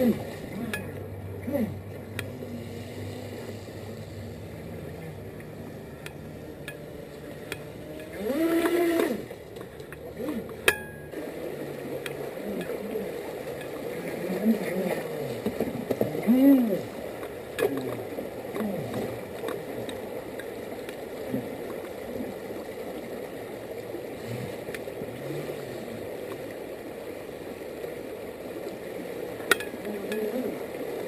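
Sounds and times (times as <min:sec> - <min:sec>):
creek water rushing: 0:00.0 - 0:31.0
toy boat electric motor whining: 0:01.4 - 0:09.5.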